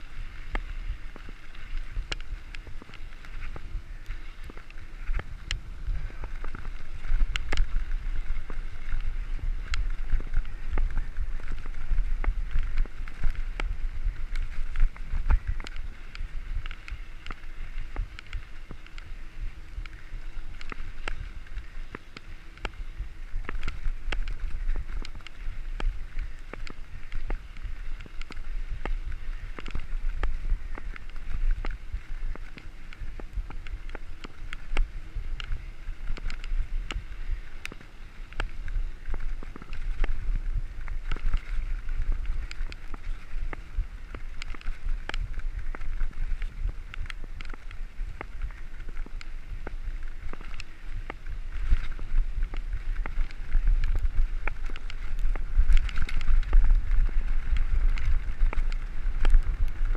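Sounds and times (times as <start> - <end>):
bike rattling clicks: 0.0 - 59.9
wind buffeting microphone: 0.0 - 59.9.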